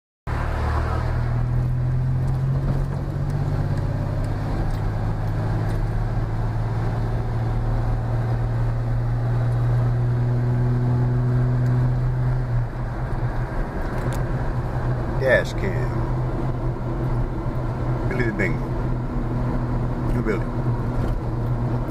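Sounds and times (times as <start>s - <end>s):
car engine and road noise: 0.3s - 21.9s.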